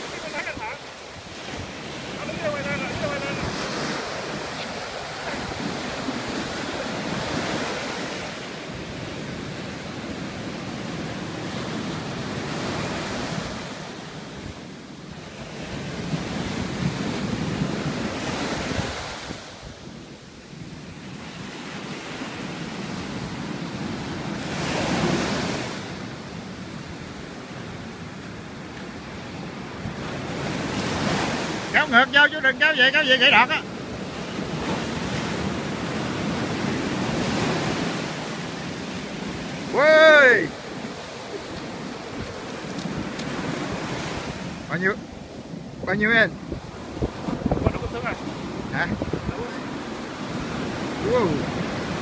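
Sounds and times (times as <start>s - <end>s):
ocean surf breaking: 0.0s - 52.0s
wind buffeting microphone: 40.5s - 52.0s.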